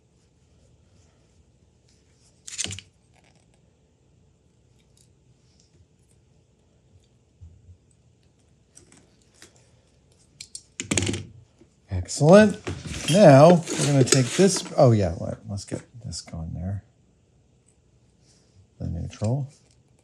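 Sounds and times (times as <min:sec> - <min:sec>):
scrape: 0:12.5 - 0:15.2.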